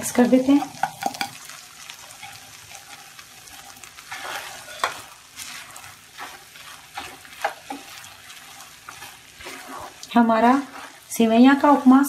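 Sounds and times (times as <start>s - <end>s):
spatula scraping a pan: 0.0s - 12.0s.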